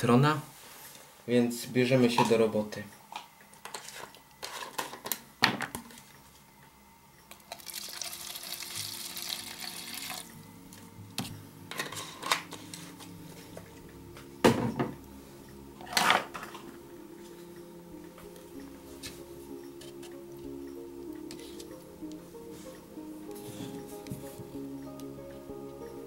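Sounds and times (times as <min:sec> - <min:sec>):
liquid pouring hiss: 0:07.5 - 0:10.3.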